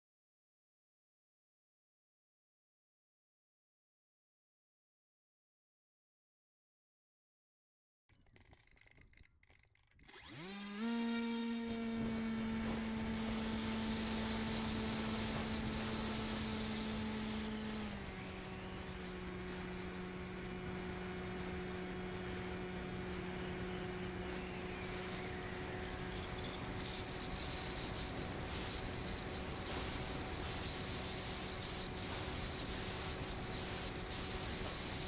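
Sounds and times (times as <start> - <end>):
electric motor propeller whine: 10.0 - 35.0.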